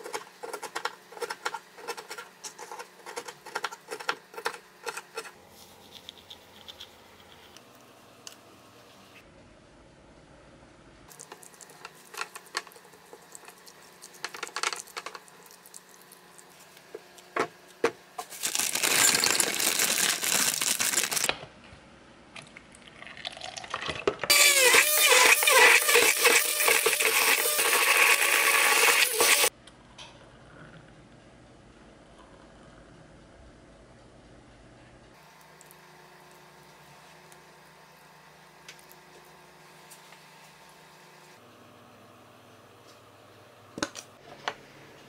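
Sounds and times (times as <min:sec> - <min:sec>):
blender motor: 0:18.4 - 0:21.3, 0:24.3 - 0:29.5.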